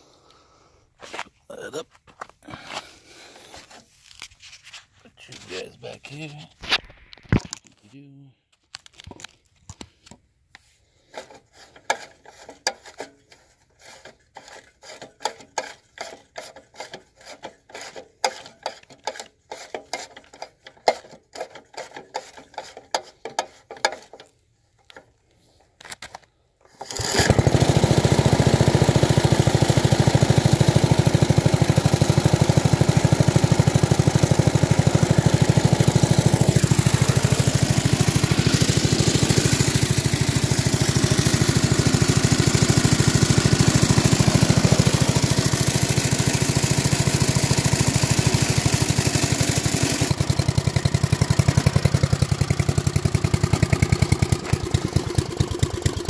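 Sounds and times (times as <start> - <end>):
mower engine running: 10.9 - 25.1, 26.7 - 56.0
clicking and knocking on engine: 14.4 - 25.2, 26.8 - 56.0.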